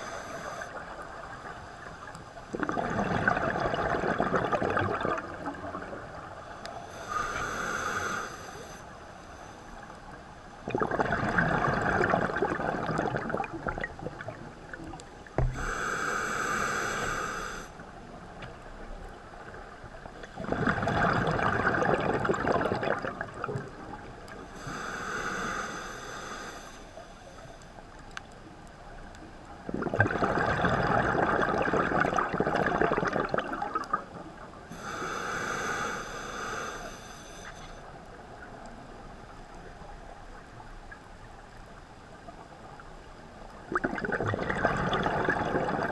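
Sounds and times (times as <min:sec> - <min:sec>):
regulator hissing on inhale: 0:00.0 - 0:01.0, 0:06.6 - 0:09.9, 0:15.4 - 0:17.9, 0:24.4 - 0:27.8, 0:34.7 - 0:38.0
bubbling exhale underwater: 0:02.5 - 0:06.2, 0:10.6 - 0:14.5, 0:20.3 - 0:24.1, 0:29.6 - 0:34.2, 0:43.7 - 0:45.9.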